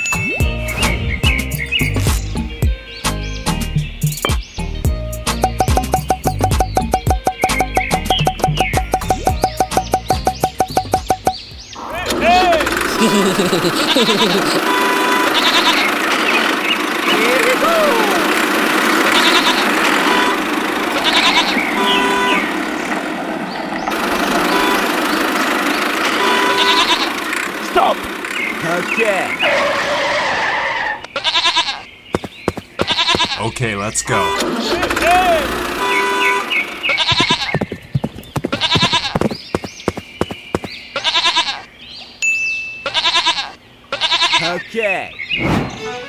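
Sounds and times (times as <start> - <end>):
tapping clicks: 5.3 - 11.4
goat bleating: 11.8 - 15.9, 19.1 - 22.3, 26.2 - 27.2, 29.4 - 31.9, 32.8 - 36.2, 36.8 - 37.6, 38.5 - 39.3, 41.0 - 41.7, 42.8 - 44.6
toy electric motor and gears: 12.1 - 14.7
short bleat-like call: 14.7 - 15.9, 26.4 - 27.1, 42.9 - 44.5.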